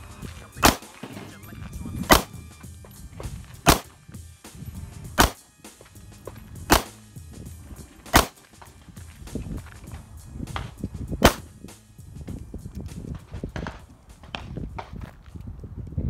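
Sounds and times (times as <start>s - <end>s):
pistol shots: 0.6s - 1.4s, 2.0s - 2.4s, 3.6s - 4.0s, 5.1s - 5.4s, 6.6s - 7.1s, 8.1s - 8.5s, 11.2s - 11.6s.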